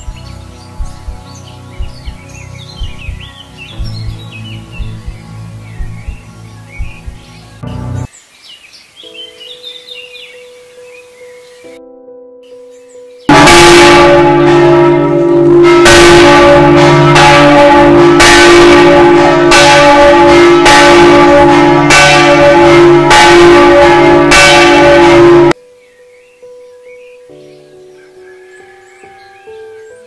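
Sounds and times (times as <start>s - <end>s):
church bell pealing: 13.3s - 25.6s.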